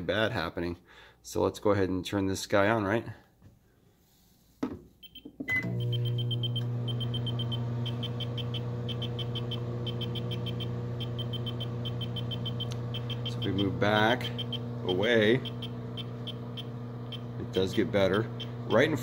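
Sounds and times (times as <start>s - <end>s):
meter alarm beeps: 5.0s - 18.9s
microwave beep: 5.0s - 19.0s
microwave oven humming: 5.2s - 19.0s.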